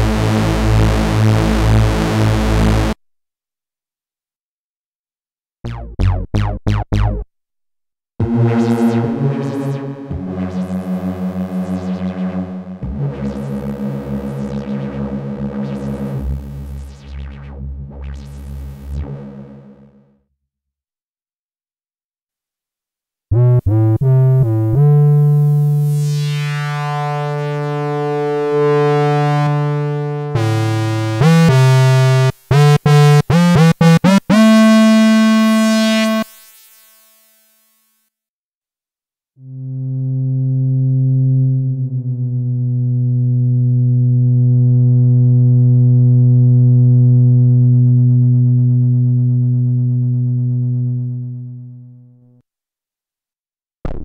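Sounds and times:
synthesizer playing notes and chords: 5.6s - 7.3s, 8.2s - 19.9s, 23.6s - 37.2s, 39.4s - 52.3s.

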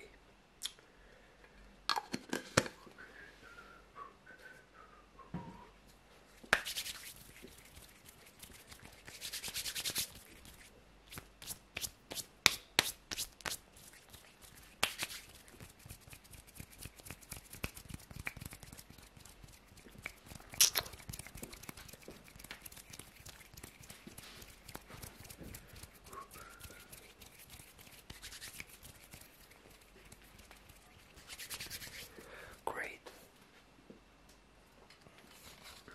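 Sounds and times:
hands rubbing together: 6.4s - 32.2s.

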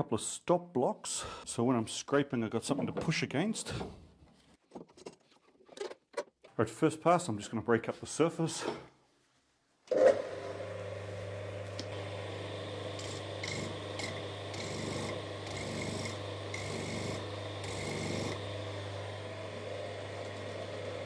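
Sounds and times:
electric motor humming: 10.0s - 21.0s.

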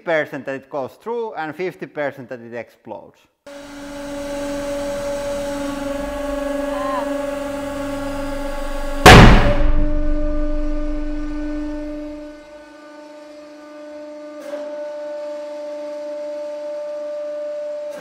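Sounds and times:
hydraulic pump whine: 3.5s - 18.0s
low rumble: 9.0s - 12.2s.

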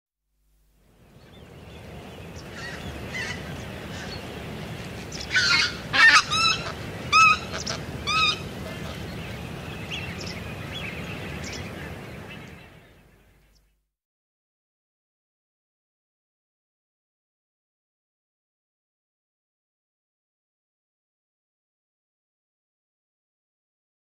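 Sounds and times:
goose yelping calls: 5.3s - 8.8s.

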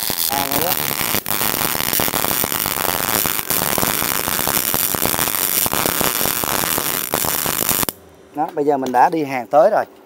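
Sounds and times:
welding arc crackling: 0.0s - 8.0s.

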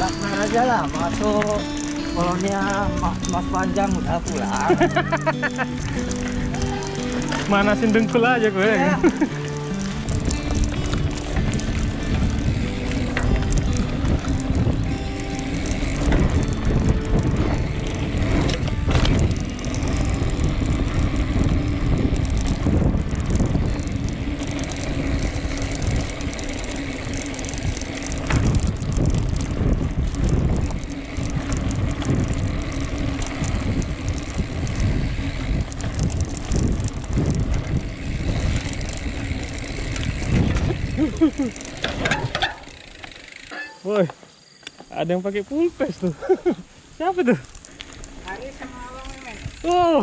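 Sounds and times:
bike frame rattling on dirt: 0.0s - 50.0s
wind buffeting microphone: 8.8s - 42.8s, 47.4s - 50.0s.

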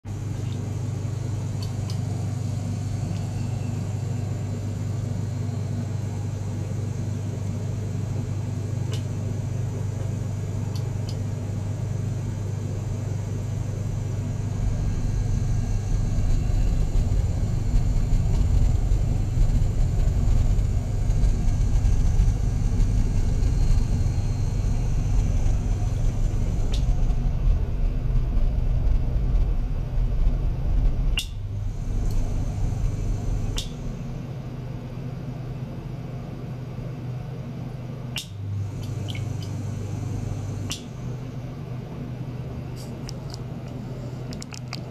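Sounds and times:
small pump humming: 0.0s - 44.9s.

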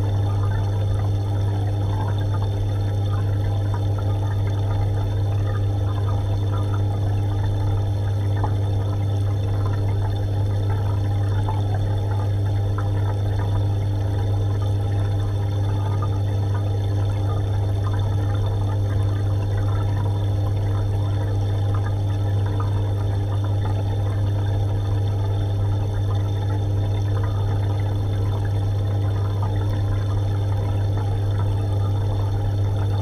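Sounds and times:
aquarium pump humming: 0.0s - 33.0s
water gurgling and trickling: 0.0s - 33.0s.

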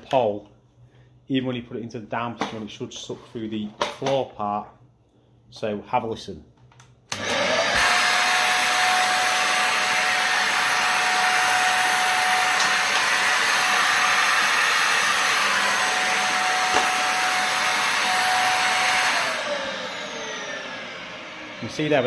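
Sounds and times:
vacuum cleaner running: 7.1s - 22.0s
vacuum motor winding down: 7.1s - 22.0s.

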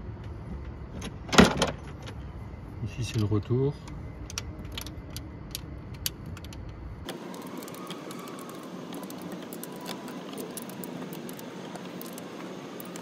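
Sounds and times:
fuel hose fittings clicking: 3.2s - 13.0s.

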